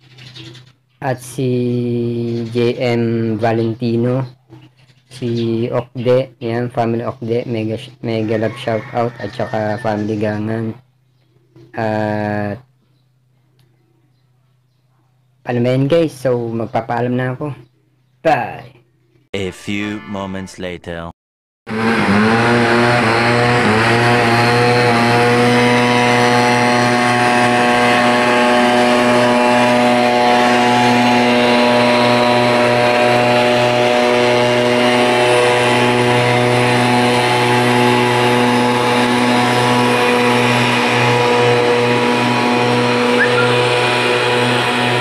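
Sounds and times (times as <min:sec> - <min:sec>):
engine droning steadily: 0:21.7 - 0:45.0.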